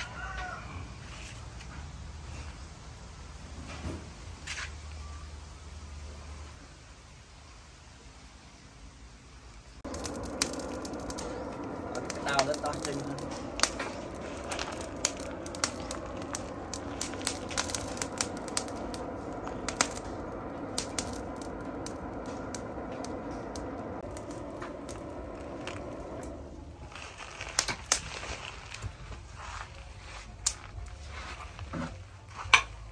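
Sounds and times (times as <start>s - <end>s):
rush of air: 9.8s - 28.9s
fire crackling and popping: 9.8s - 32.9s.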